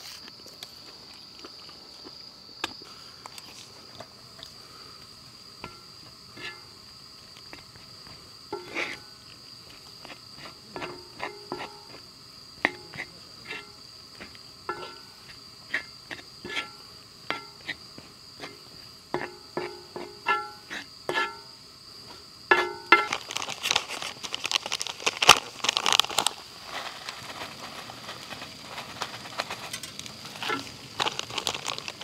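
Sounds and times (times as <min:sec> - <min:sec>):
crickets chirring: 0:00.0 - 0:32.0
spatula scraping griddle pan: 0:05.6 - 0:06.8, 0:08.5 - 0:12.0, 0:12.6 - 0:17.8, 0:18.4 - 0:21.5, 0:22.1 - 0:23.1, 0:27.9 - 0:31.0.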